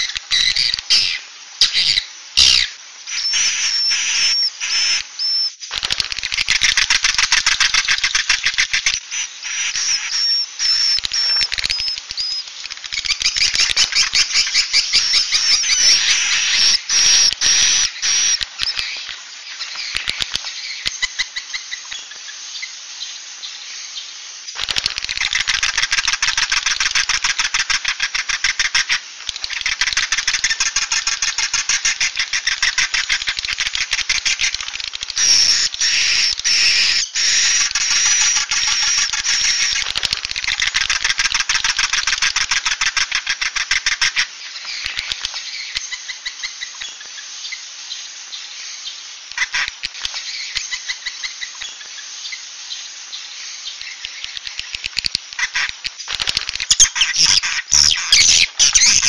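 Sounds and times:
swiftlets chirring and twittering: 0:00.0 - 0:21.7, 0:53.7 - 0:59.0.

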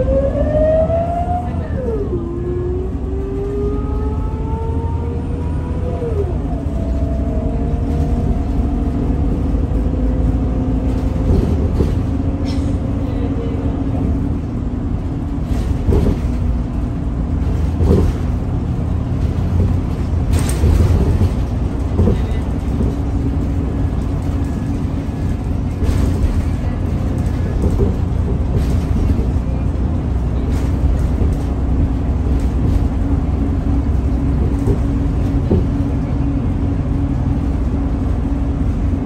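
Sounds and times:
bus engine rumble: 0:00.0 - 0:39.0
body knocks and rattles: 0:19.2 - 0:29.4.

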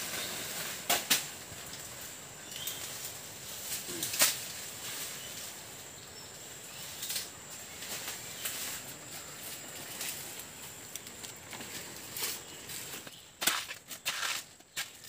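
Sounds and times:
dry leaves rustling and crackling: 0:00.0 - 0:15.0.

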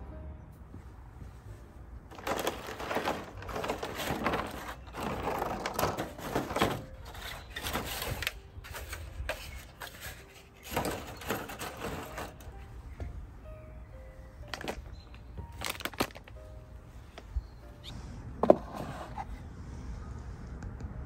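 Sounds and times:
plastic trays crinkling and clacking: 0:02.1 - 0:12.5, 0:14.5 - 0:16.4.

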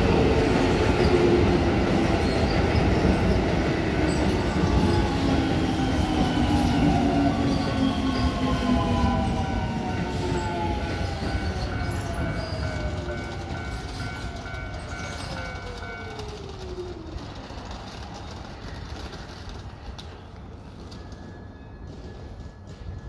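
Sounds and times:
level crossing warning bell: 0:04.1 - 0:16.8, 0:20.6 - 0:23.0.

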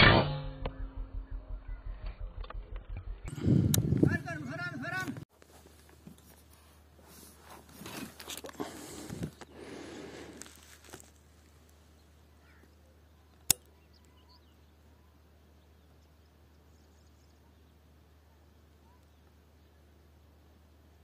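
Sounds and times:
rustling handling noise: 0:05.0 - 0:09.5, 0:10.2 - 0:11.9
faint bird chirps: 0:11.9 - 0:20.8.

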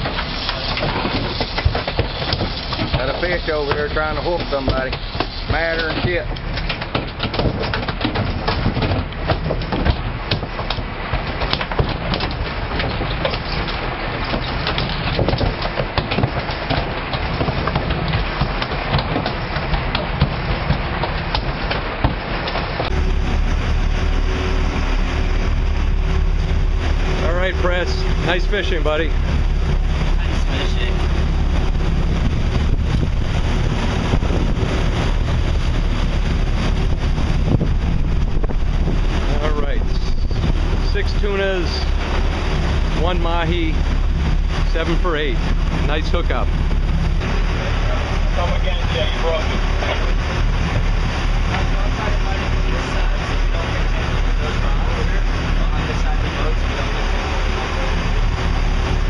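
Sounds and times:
short irregular knocks: 0:00.0 - 0:23.0
boat engine: 0:00.0 - 0:59.0
rushing water of wake: 0:00.0 - 0:59.0
wind gusts: 0:00.0 - 0:59.0.

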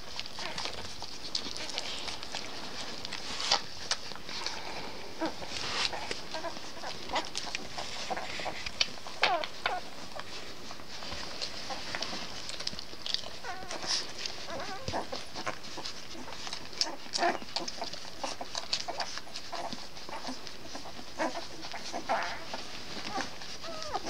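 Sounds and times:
puppies squeaking: 0:00.0 - 0:04.5, 0:05.2 - 0:24.0.

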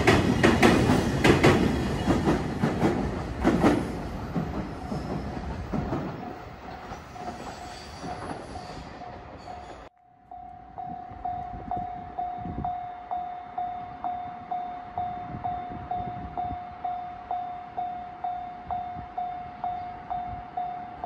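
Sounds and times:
train wheels clattering on rails: 0:00.0 - 0:09.9.

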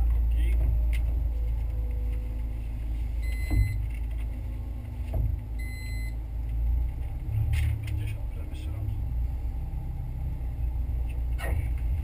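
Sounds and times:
car engine low rumble: 0:00.0 - 0:12.0.

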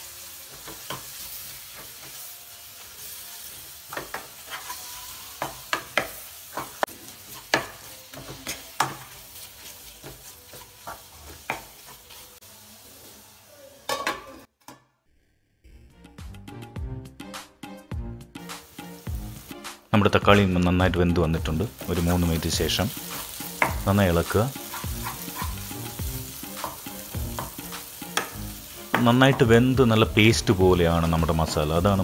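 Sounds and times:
food sizzling in a frying pan: 0:00.0 - 0:14.5, 0:18.4 - 0:32.0
spatula scraping and tapping pan: 0:03.9 - 0:12.2, 0:22.9 - 0:23.9, 0:24.5 - 0:29.5.

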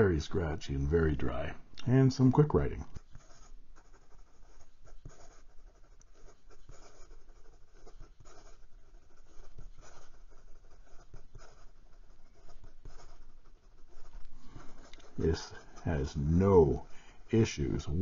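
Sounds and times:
fountain pen scratching paper: 0:02.9 - 0:16.3.

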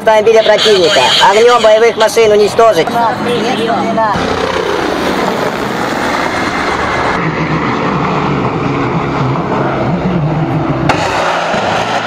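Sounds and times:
helicopters flying past: 0:04.1 - 0:07.4.

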